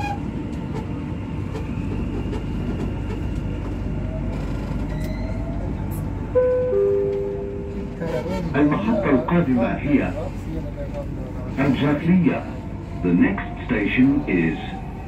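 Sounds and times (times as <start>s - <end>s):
train rumble: 0.0s - 15.0s
two-note electronic tone: 6.4s - 7.8s.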